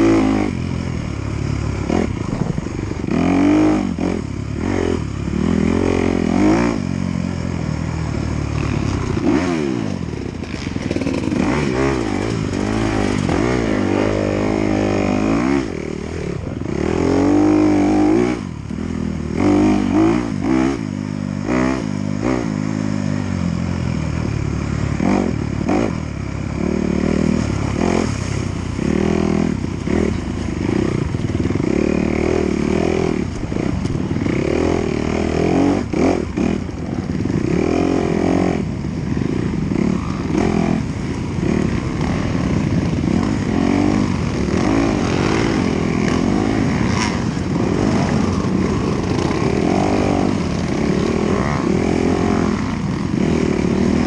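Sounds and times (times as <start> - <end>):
dirt bike engine revving: 0.0 - 54.0
bike rattling over bumps: 8.4 - 15.6, 40.2 - 54.0.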